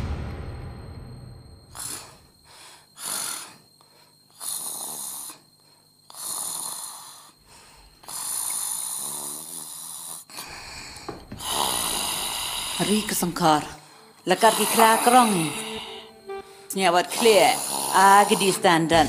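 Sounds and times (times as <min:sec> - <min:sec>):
man snoring: 0:03.0 - 0:03.6, 0:04.3 - 0:05.5, 0:06.1 - 0:07.4, 0:08.0 - 0:13.2, 0:14.4 - 0:16.2, 0:17.2 - 0:19.0.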